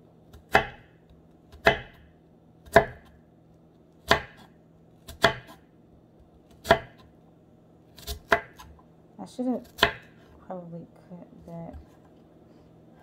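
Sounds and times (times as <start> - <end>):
knife chopping on wooden board: 0.3 - 0.9, 1.5 - 3.2, 4.0 - 5.6, 6.5 - 7.1, 8.0 - 8.8, 9.6 - 10.1.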